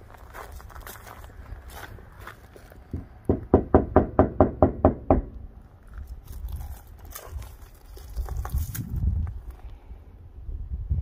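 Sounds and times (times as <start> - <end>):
knuckles knocking on plastic door: 3.3 - 5.3.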